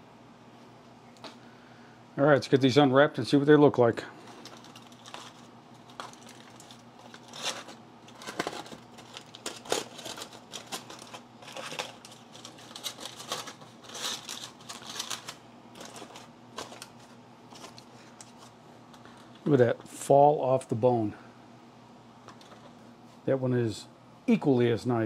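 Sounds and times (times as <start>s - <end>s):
aluminum foil crinkling: 4.2s - 19.4s.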